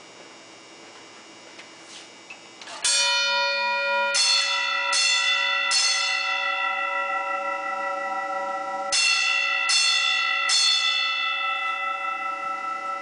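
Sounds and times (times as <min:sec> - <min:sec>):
fire alarm bell strokes ringing: 0:02.8 - 0:13.0.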